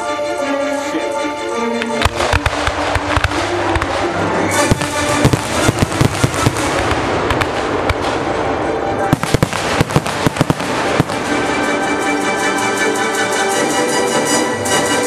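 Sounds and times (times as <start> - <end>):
music playing: 0.0 - 15.0
fireworks bangs and crackles: 2.0 - 12.0.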